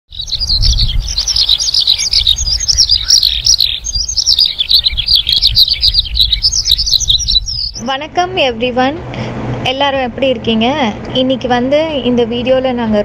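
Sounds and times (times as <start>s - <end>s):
small birds chirping: 0.1s - 7.9s
steady low rumble: 0.2s - 13.0s.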